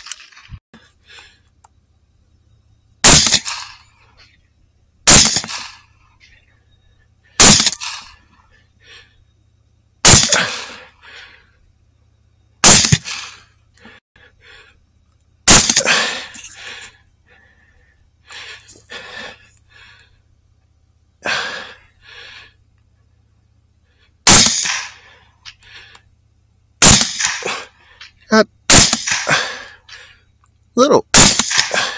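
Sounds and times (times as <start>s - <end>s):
loud rifle shots with echo: 3.0s - 3.7s, 5.1s - 5.8s, 7.4s - 8.0s, 10.0s - 10.5s, 12.6s - 13.2s, 24.3s - 24.9s, 26.8s - 27.5s, 28.7s - 29.3s, 31.1s - 31.8s.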